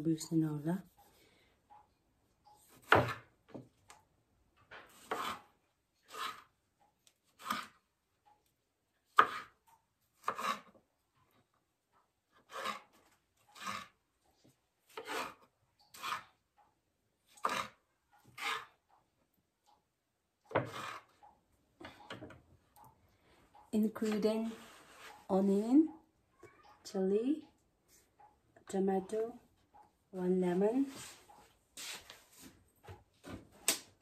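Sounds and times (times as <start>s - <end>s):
knife slicing tomatoes: 4.9s - 5.5s, 7.2s - 7.8s, 9.1s - 9.6s, 10.2s - 10.7s, 12.4s - 13.9s.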